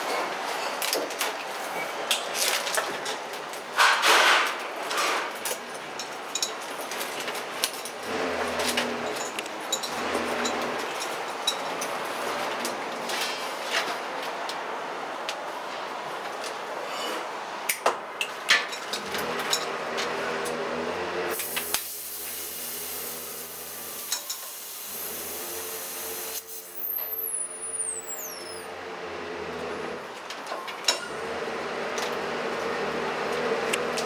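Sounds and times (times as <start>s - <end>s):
gas hissing from cylinder: 21.3s - 27.5s.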